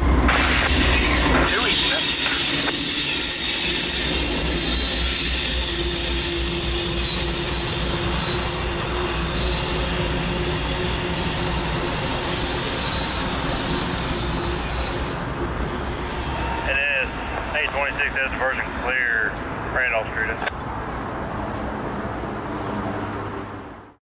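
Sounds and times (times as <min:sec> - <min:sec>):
freight train rumbling: 0:00.0 - 0:24.0
train wheels squealing: 0:00.3 - 0:19.3.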